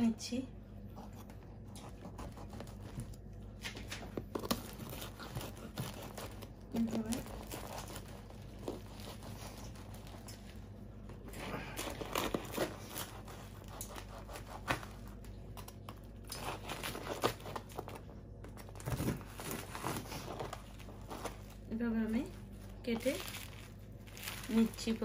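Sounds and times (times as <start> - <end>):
knife sawing through crusty bread: 4.6 - 10.2, 11.6 - 14.8.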